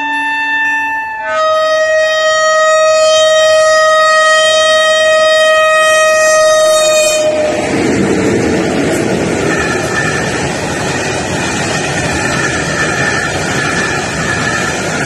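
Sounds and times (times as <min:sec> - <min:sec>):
locomotive horn: 0:00.0 - 0:07.7
train rumbling past: 0:04.9 - 0:15.0.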